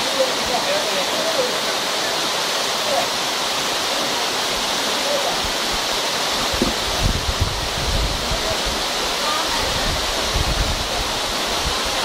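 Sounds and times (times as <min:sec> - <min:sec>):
waterfall splashing over rocks: 0:00.0 - 0:12.0
low thumps: 0:06.5 - 0:07.5.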